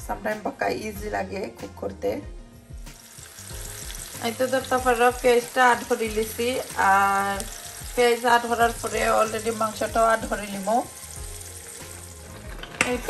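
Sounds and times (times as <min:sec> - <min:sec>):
background music melody: 0:00.0 - 0:13.0
onions sizzling in oil: 0:02.9 - 0:13.0.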